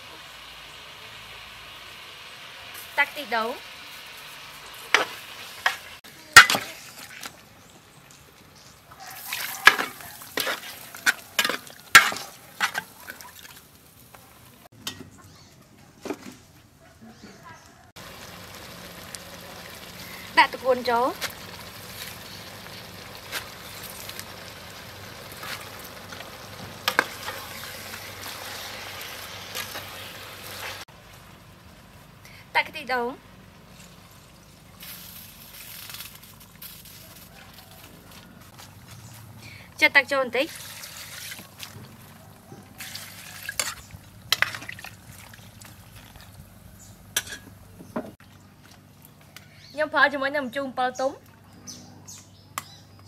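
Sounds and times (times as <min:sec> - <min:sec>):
sizzling hiss: 0:00.0 - 0:06.0, 0:18.0 - 0:32.6, 0:33.5 - 0:37.0
ladle scraping through greens: 0:09.1 - 0:13.2, 0:40.5 - 0:46.4.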